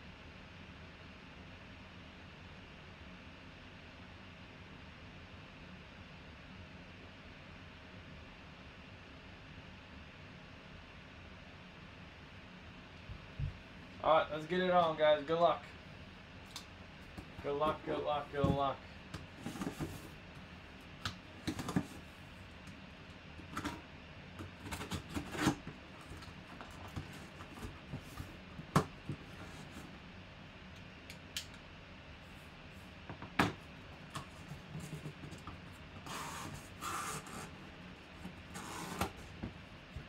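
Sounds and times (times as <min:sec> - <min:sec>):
cardboard flaps rustling: 0:17.0 - 0:20.4, 0:21.2 - 0:22.3, 0:24.4 - 0:29.9, 0:33.6 - 0:40.0
knife cutting cardboard: 0:19.2 - 0:20.2, 0:24.4 - 0:29.9, 0:34.0 - 0:39.5.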